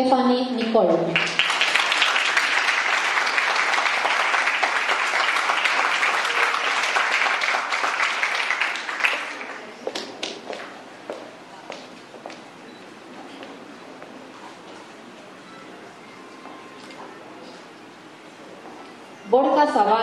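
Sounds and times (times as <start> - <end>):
audience applauding: 1.2 - 10.4.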